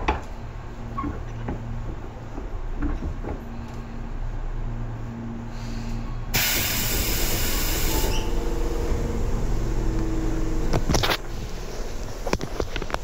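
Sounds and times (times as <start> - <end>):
train car low hum: 0.0 - 13.0
compressed air hissing: 6.4 - 8.4.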